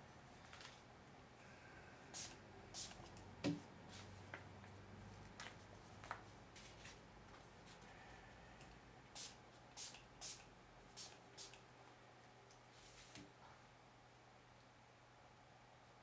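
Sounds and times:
spray bottle hisses: 2.2 - 3.0, 9.2 - 11.6.

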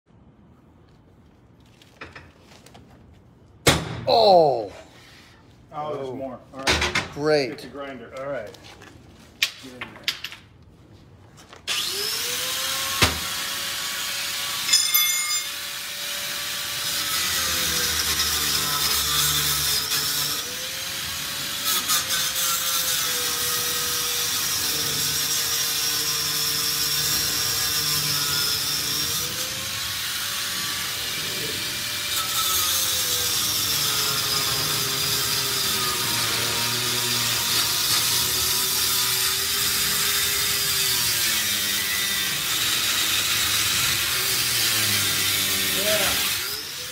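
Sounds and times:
angle grinder cutting steel: 11.7 - 46.9.

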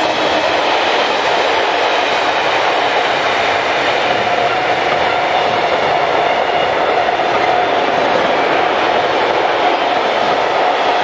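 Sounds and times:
train wheels rushing on rails: 0.0 - 11.0.

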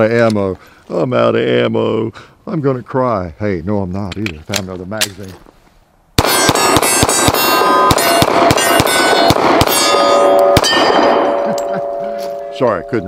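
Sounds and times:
pistol shots: 6.2 - 11.4
steel targets clanging: 7.6 - 13.0.

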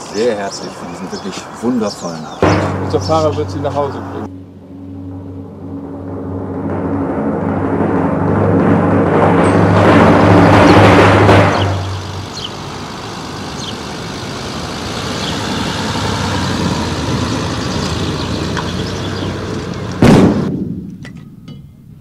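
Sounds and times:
loud rush: 2.4 - 20.7
car driving over cobblestones: 6.6 - 20.5.

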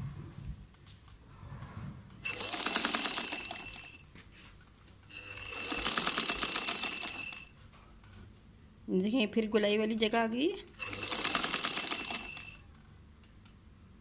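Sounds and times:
sewing machine stitching: 2.2 - 4.0, 5.1 - 7.5, 10.8 - 12.7.

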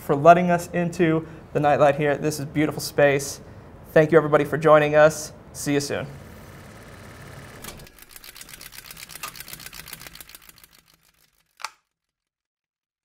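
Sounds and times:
rapid mechanical clicking: 6.4 - 12.2.

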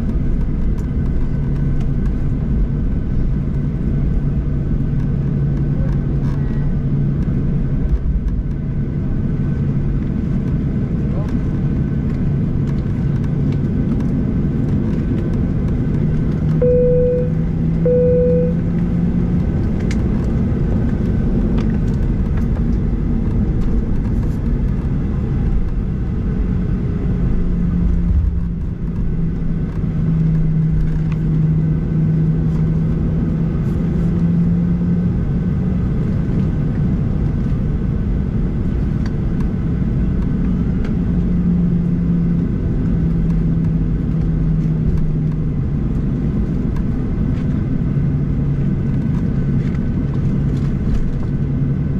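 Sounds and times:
jet engines at taxi thrust: 0.0 - 51.9
low rumble and hum: 0.0 - 51.9
short beeps: 16.6 - 18.7.

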